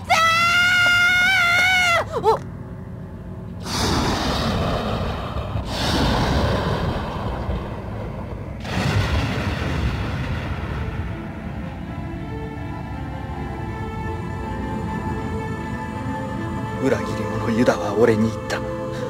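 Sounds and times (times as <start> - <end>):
boy screaming: 0.0 - 2.4
thunder rumbling: 3.6 - 12.7.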